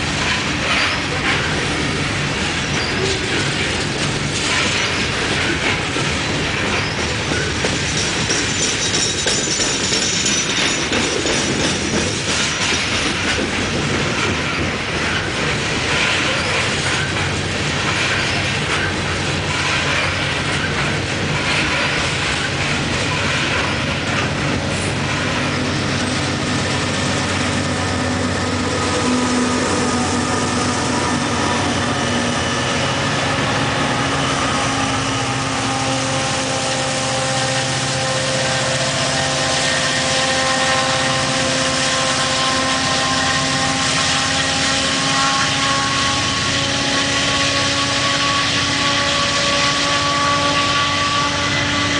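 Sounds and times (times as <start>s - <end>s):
train rumbling on rails: 0.0s - 51.9s
locomotive engine drone: 9.7s - 51.9s.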